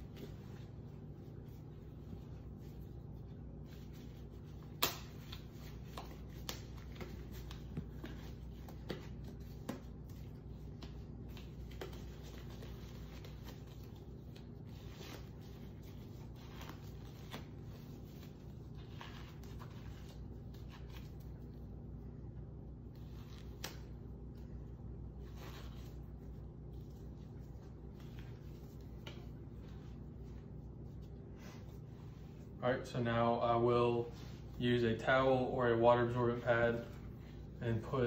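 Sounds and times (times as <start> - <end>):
rubber gloves rubbing and crinkling: 0.0 - 38.0
glove snapping: 4.6 - 10.1, 23.5 - 24.0.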